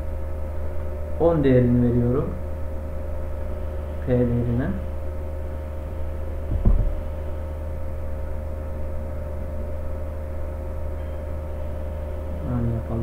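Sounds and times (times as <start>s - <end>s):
low electrical hum: 0.0s - 13.0s
short low thump: 6.4s - 7.0s.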